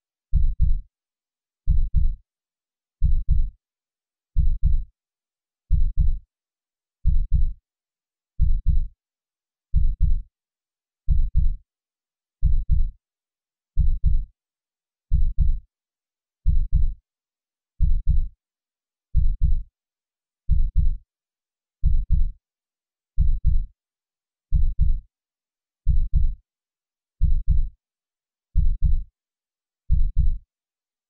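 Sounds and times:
heartbeat double thump: 4.4s - 4.8s, 15.1s - 15.6s, 17.8s - 18.2s, 19.2s - 19.6s, 21.8s - 22.3s, 24.6s - 25.0s, 25.9s - 26.4s, 27.2s - 27.7s, 28.6s - 29.0s, 29.9s - 30.4s.

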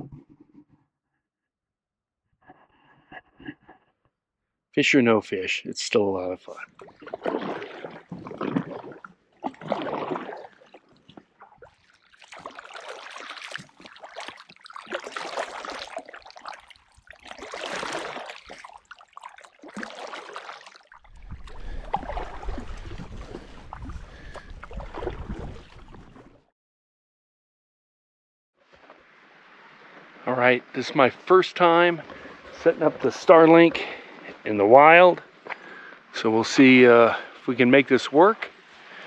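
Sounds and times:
paddle splashing in water: 6.5s - 26.4s, 30.9s - 34.4s.

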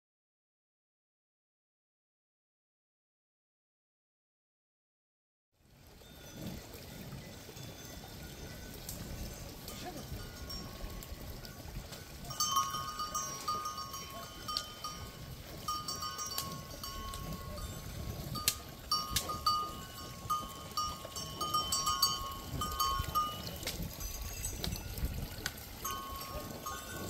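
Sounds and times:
cowbells clanking: 5.9s - 27.0s.

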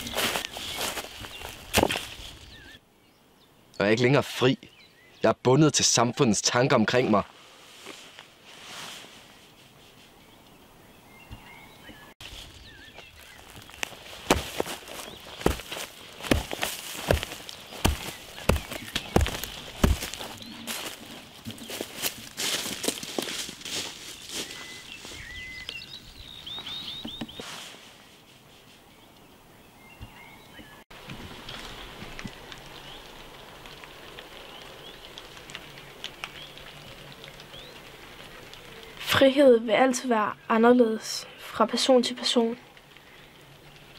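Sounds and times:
footsteps crunching dry leaves: 0.0s - 2.7s, 12.2s - 28.2s
small birds calling: 0.0s - 6.4s, 10.0s - 27.4s, 28.9s - 30.8s, 34.3s - 39.0s
outdoor background noise: 0.0s - 43.9s.

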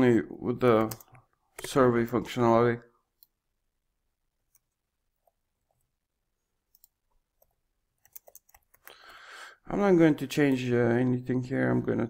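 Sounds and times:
computer keyboard keystrokes: 0.7s - 1.8s, 8.0s - 8.9s.

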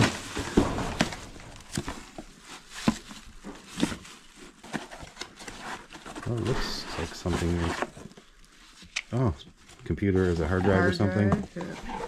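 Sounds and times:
cardboard boxes knocking and scraping: 0.0s - 8.1s, 10.7s - 12.0s
plastic bag rustling: 0.0s - 12.0s.

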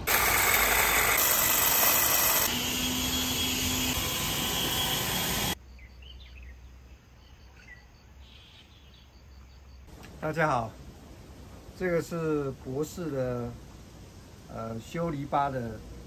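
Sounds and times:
leaf blower rushing air: 0.0s - 5.6s
faint birdsong: 5.6s - 10.6s.

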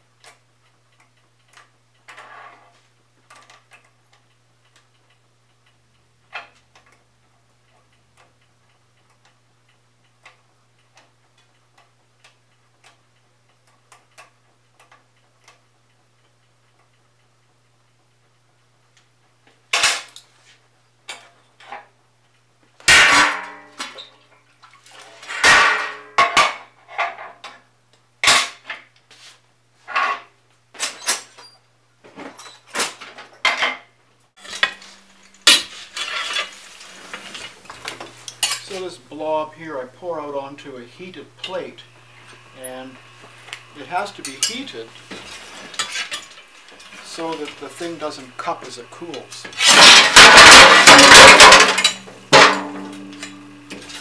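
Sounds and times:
metal tools clanging: 34.4s - 38.9s, 43.8s - 54.0s
low steady hum: 34.4s - 54.0s.

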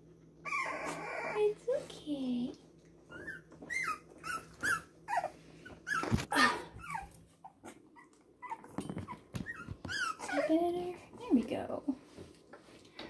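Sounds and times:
puppies whimpering: 0.4s - 1.7s, 2.9s - 11.1s.

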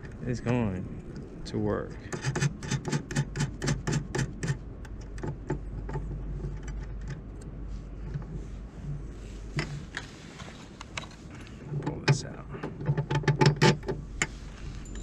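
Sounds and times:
low steady rumble: 0.0s - 15.0s
small metal clicks and rattling: 2.0s - 7.5s.

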